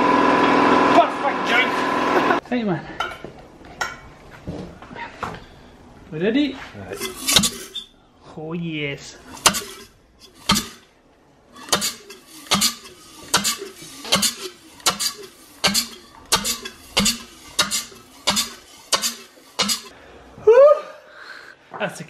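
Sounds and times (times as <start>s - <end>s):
rotary engine chuffing: 11.6s - 19.9s.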